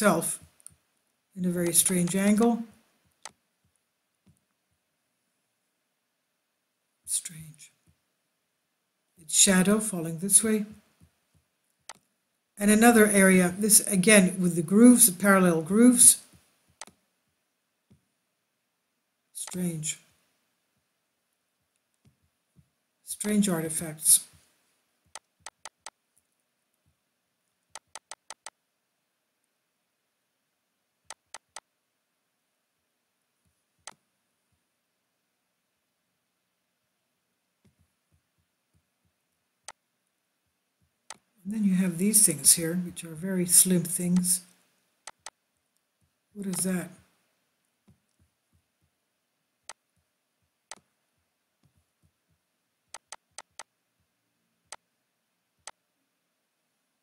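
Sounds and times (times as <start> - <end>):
computer mouse button clicking: 27.8 - 28.5, 45.1 - 45.3.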